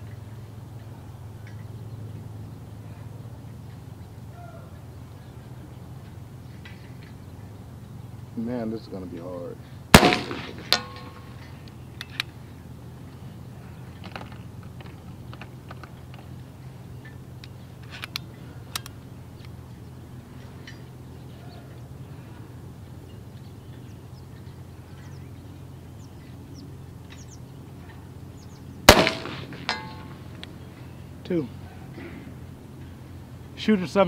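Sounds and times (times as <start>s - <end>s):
low background hum: 0.0s - 34.0s
air pistol shot: 9.9s - 11.2s, 28.9s - 30.1s
faint clicks: 13.8s - 19.6s.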